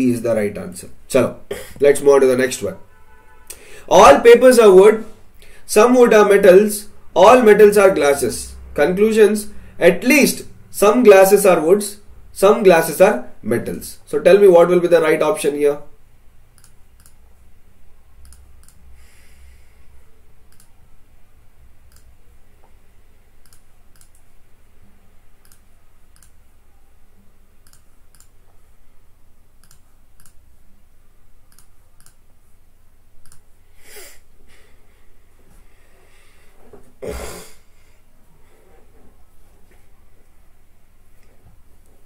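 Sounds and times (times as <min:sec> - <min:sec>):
low steady hum: 0:15.4 - 0:42.0
faint sparse clicks: 0:18.2 - 0:18.8, 0:20.5 - 0:20.8, 0:33.2 - 0:33.5.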